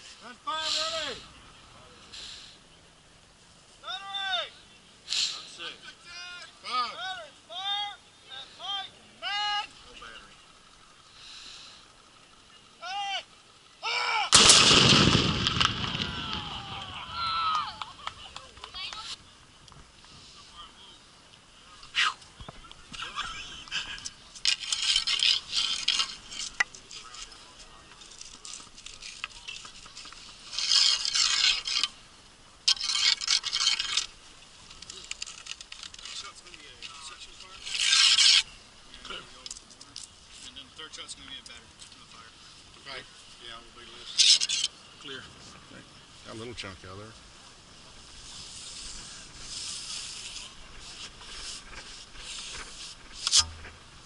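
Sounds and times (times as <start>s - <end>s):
rough scraping inside cannon bore: 24.4s - 27.4s, 28.0s - 32.0s, 32.6s - 39.2s, 44.0s - 44.8s, 48.2s - 54.0s.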